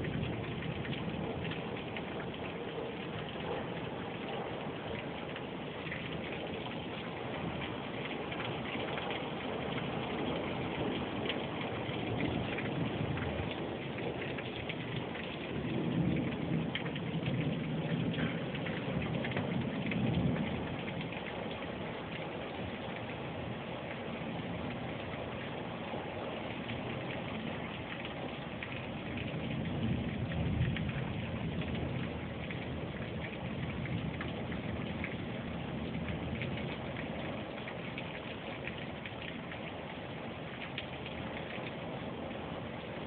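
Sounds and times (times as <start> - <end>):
thunder rumbling: 0.0 - 22.8, 27.6 - 38.2
rain falling: 0.0 - 43.0.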